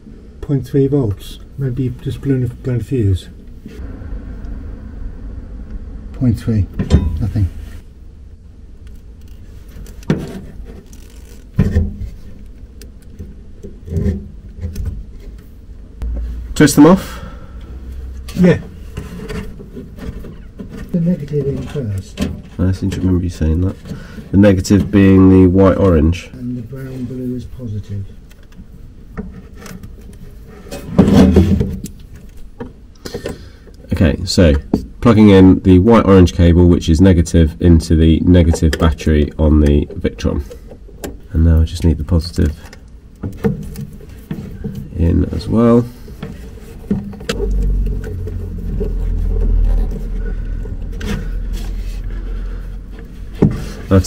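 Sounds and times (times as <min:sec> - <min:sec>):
low steady hum: 0:00.0 - 0:54.0
wire strippers clicking and scraping: 0:08.8 - 0:15.5, 0:39.6 - 0:54.0
rubbing scrape: 0:45.8 - 0:54.0.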